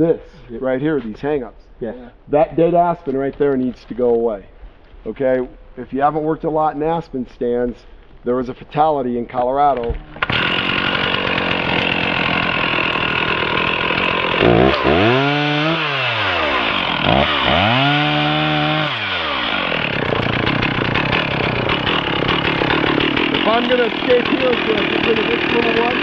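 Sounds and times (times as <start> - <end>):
chainsaw running hard: 10.2 - 26.0.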